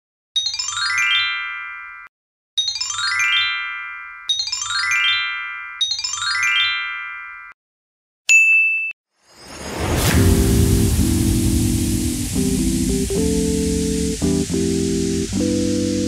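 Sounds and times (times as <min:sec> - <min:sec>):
sparkling bell-like chime: 0:00.4 - 0:07.6, 0:08.4 - 0:11.0
single high ding: 0:08.3 - 0:09.0
rising whoosh: 0:09.3 - 0:15.4
music: 0:10.0 - 0:16.0.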